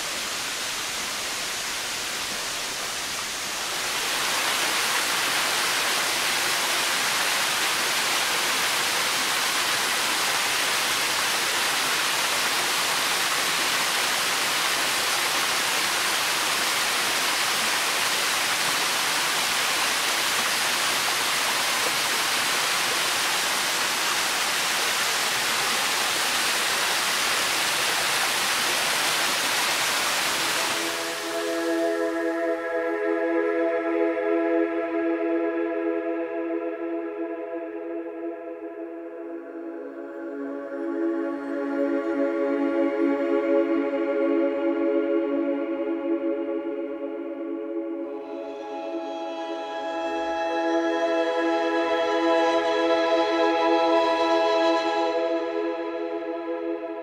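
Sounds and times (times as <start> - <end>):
waterfall roaring: 0.0 - 32.6.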